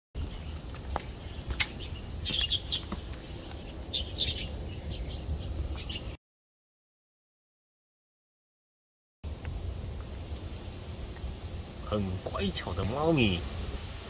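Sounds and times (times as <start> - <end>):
small birds chirping: 0.2 - 6.2.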